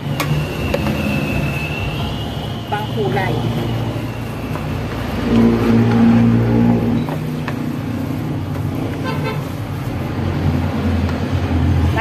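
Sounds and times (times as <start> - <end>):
spatula scraping a metal wok: 3.1 - 11.0.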